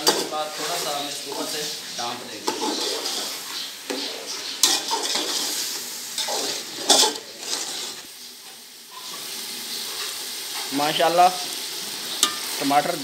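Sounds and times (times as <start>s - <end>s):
food sizzling in oil: 0.0s - 13.0s
spoon scraping and clinking on pot: 2.4s - 3.4s, 4.5s - 5.6s, 6.2s - 8.0s, 12.1s - 12.6s.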